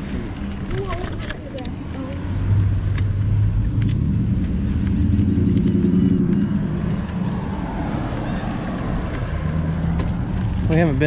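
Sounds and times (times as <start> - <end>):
car passing by: 3.4 - 11.0.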